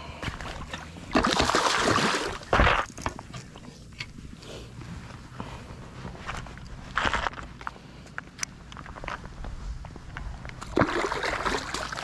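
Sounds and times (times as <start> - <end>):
small water sounds: 0.1 - 4.3, 10.5 - 12.0.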